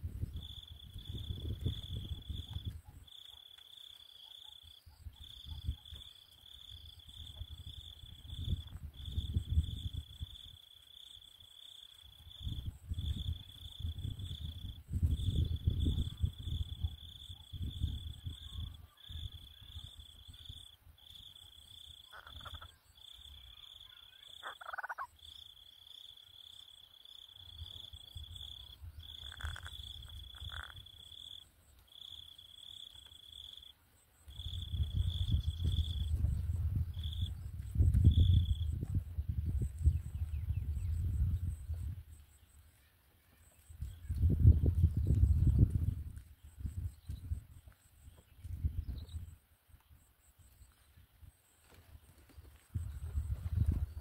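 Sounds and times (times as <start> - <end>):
insect trilling buzz: 21.8 - 33.7.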